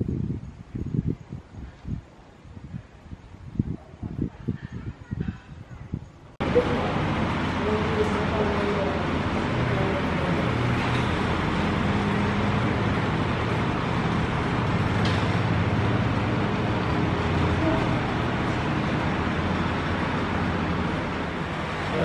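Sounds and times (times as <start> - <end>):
faint voices: 3.9 - 13.3, 15.4 - 22.0.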